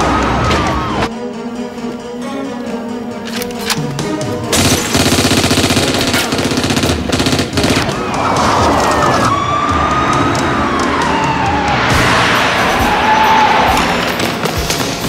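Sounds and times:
film score: 0:00.0 - 0:15.0
automatic gunfire: 0:04.5 - 0:07.9.

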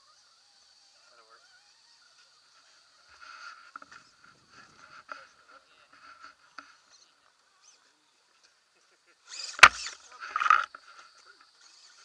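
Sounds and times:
toy car clattering on rock: 0:09.3 - 0:12.0
sharp crack: 0:09.4 - 0:10.7.

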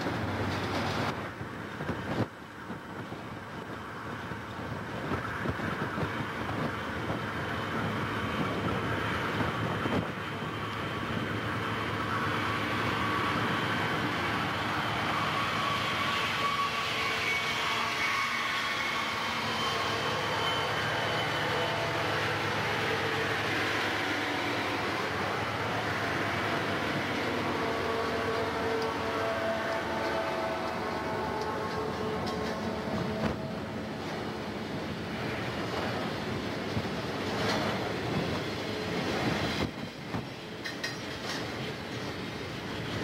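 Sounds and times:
diesel locomotives passing: 0:00.0 - 0:43.0.

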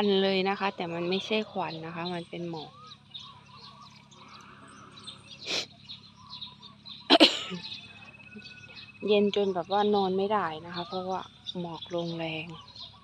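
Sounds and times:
faint bird chirping: 0:00.0 - 0:13.0
sneeze-like bursts of breath: 0:05.4 - 0:05.8.

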